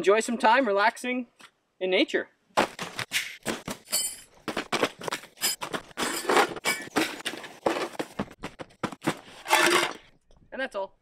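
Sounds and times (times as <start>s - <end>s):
items set down on ground: 2.6s - 10.2s.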